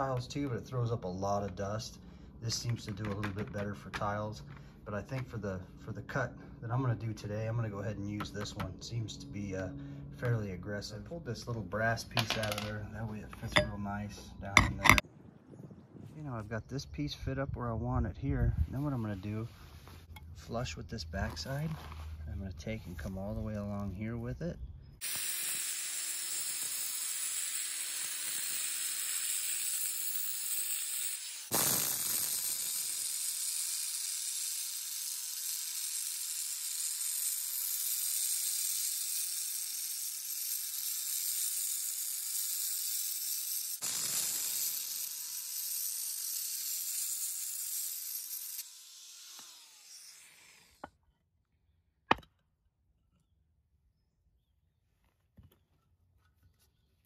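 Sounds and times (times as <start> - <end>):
angle grinder cutting concrete: 25.0 - 50.9.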